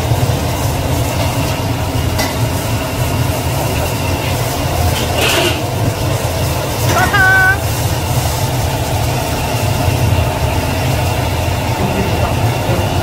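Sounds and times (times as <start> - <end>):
sauce bubbling in wok: 0.0 - 7.0, 7.6 - 13.0
wok burner roar: 0.0 - 13.0
ladle scraping wok: 0.3 - 8.9.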